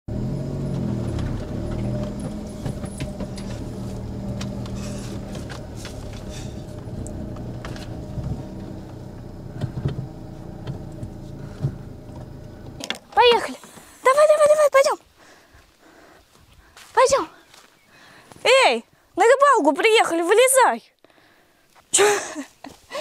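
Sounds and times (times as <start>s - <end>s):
car engine running at low speed: 0.1s - 14.8s.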